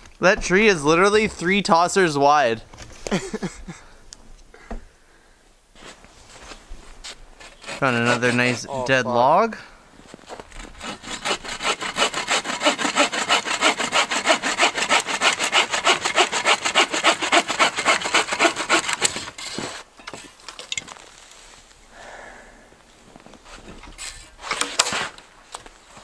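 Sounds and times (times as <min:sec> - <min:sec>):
bow saw cutting log: 0:07.4 - 0:08.8, 0:10.6 - 0:19.9.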